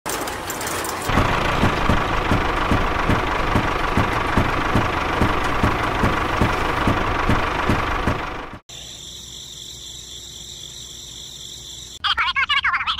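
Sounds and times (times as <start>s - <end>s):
small motor whining and thumping: 0.6s - 8.6s.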